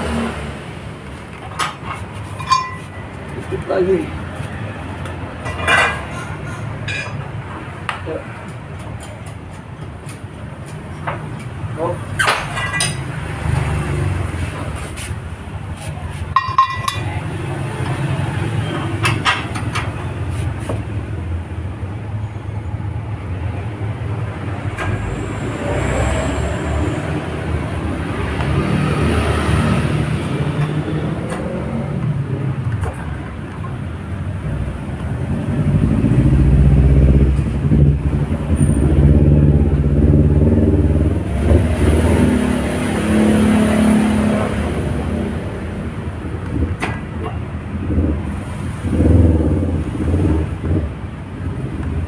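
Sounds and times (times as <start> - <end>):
sharp metallic clinks: 2.4 - 3.0.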